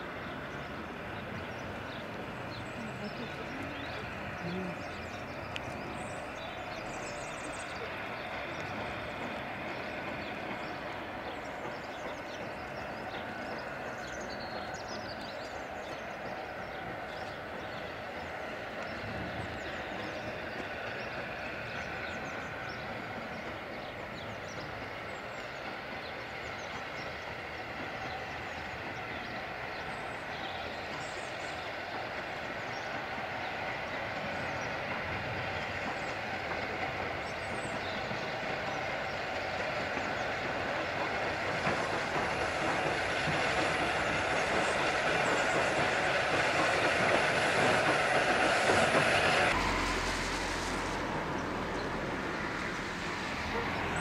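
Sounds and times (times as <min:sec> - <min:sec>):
steam hissing from locomotive: 0:00.0 - 0:54.0.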